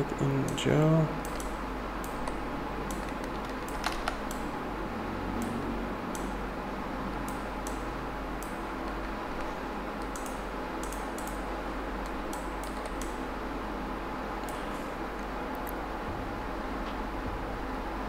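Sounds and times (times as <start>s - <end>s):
steady background hiss: 0.0s - 18.0s
computer mouse and keyboard clicks: 1.2s - 4.4s, 8.4s - 11.4s, 12.0s - 13.2s.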